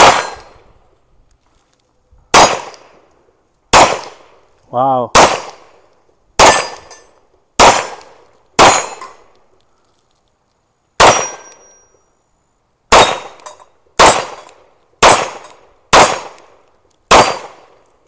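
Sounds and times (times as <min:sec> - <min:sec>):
pistol shots: 0:00.0 - 0:00.6, 0:02.3 - 0:03.0, 0:03.7 - 0:04.5, 0:05.1 - 0:09.3, 0:11.0 - 0:11.7, 0:12.9 - 0:17.8.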